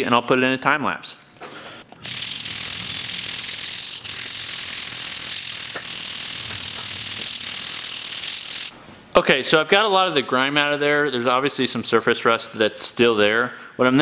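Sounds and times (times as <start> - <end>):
wire brush scrubbing metal: 2.0 - 8.7.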